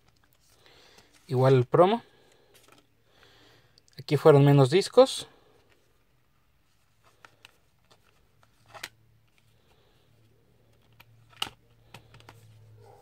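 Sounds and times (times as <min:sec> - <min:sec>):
plastic disc case clicks: 0:10.8 - 0:12.4.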